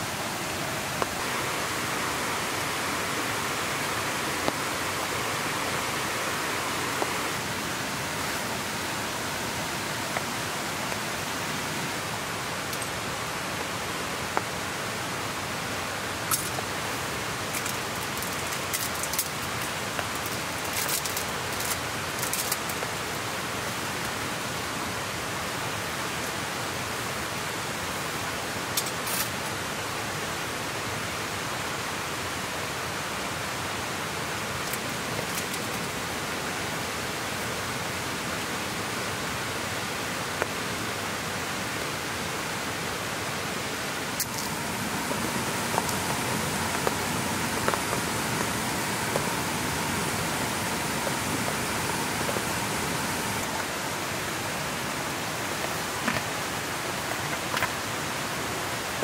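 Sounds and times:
faint steady tone: 0.0s - 18.4s, 19.1s - 59.0s
rain hiss: 0.0s - 59.0s
raindrop ticks: 17.5s - 23.2s, 44.2s - 53.7s.

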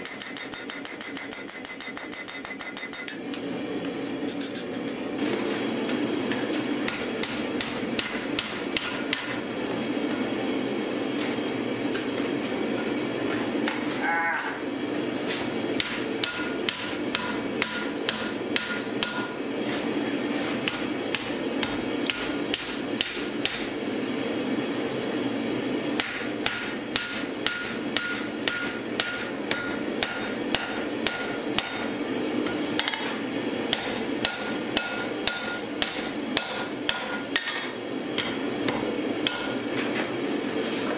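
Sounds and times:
hammer striking steel on anvil: 0.0s - 3.2s, 6.8s - 9.4s, 15.8s - 19.4s, 20.6s - 23.7s, 26.0s - 33.1s, 33.7s - 39.6s
steady background noise: 0.0s - 40.9s.

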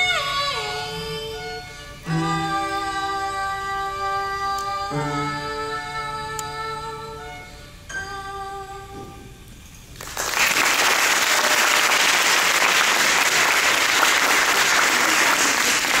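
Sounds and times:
audience applause: 10.0s - 16.0s.

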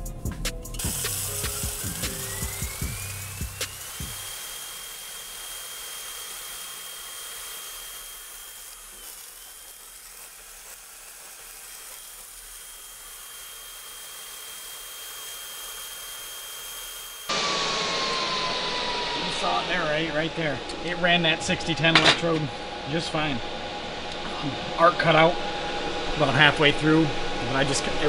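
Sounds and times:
welding arc hissing: 0.8s - 17.4s.

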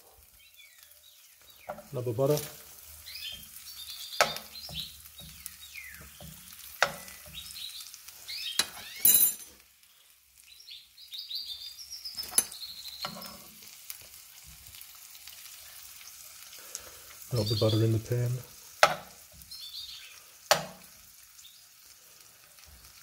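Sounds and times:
butter sizzling in a frying pan: 0.0s - 23.0s
metal spoon clinking on pan: 8.5s - 9.6s, 12.2s - 13.5s.

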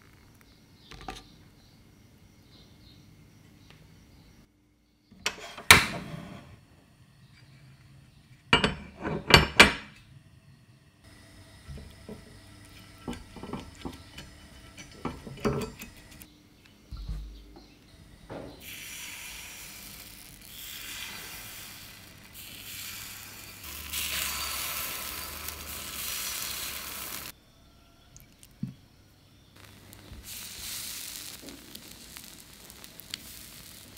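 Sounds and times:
batter sizzling in hot oil: 11.1s - 16.3s, 18.6s - 27.3s, 29.6s - 33.9s
utensils clinking on glass and metal: 13.0s - 16.2s.

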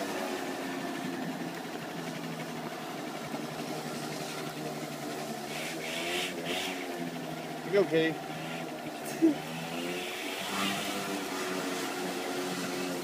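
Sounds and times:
moped engine running: 0.0s - 13.0s.

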